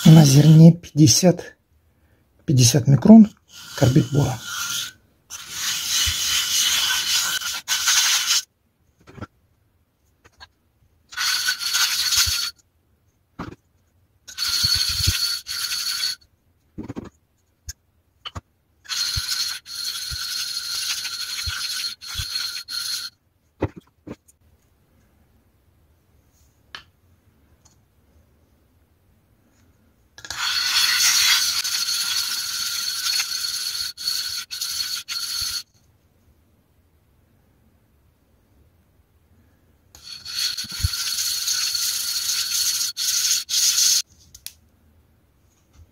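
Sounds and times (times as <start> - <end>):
stone scraping on grit: 14.4 - 16.2, 18.9 - 23.1, 30.3 - 35.6.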